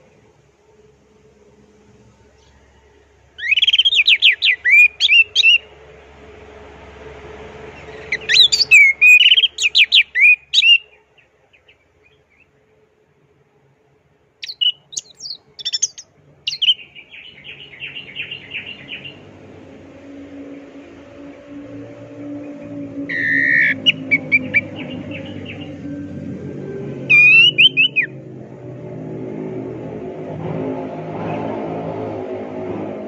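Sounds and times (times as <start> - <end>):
thrush singing whistled notes: 2.4 - 5.8, 7.7 - 12.5, 14.4 - 28.2
bird buzzy trill: 3.4 - 5.7, 7.7 - 11.0, 14.4 - 19.3, 22.4 - 26.1, 27.1 - 28.2.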